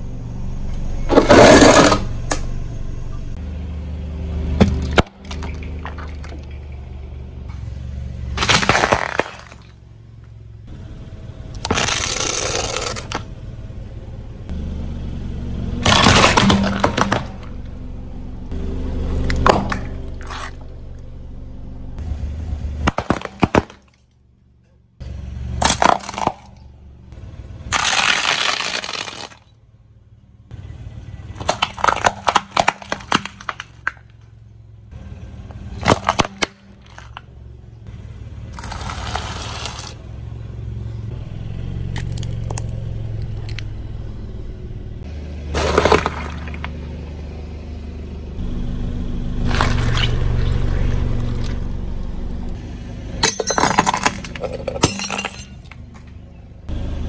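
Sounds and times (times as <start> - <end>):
car engine low hum: 0.0 - 57.0
tyres crushing objects: 1.1 - 2.1, 8.3 - 9.8, 11.6 - 13.3, 15.8 - 17.7, 19.2 - 20.6, 22.8 - 24.1, 25.6 - 26.6, 27.7 - 29.5, 31.4 - 34.2, 35.8 - 37.3, 45.4 - 46.9, 53.2 - 56.3.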